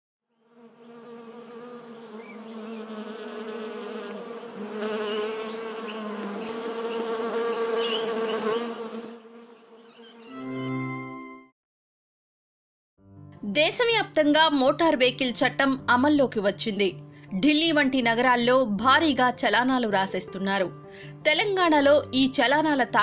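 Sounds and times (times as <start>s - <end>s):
bee buzzing: 0.3s - 10.3s.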